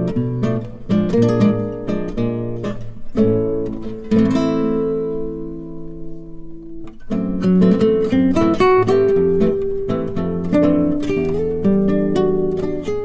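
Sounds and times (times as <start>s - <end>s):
acoustic guitar picking: 0.0s - 13.0s.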